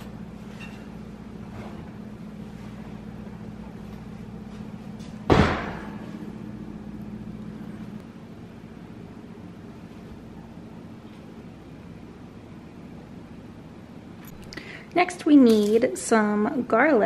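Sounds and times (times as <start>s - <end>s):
steady low hum: 0.0s - 17.0s
oven door banging shut: 5.3s - 6.0s.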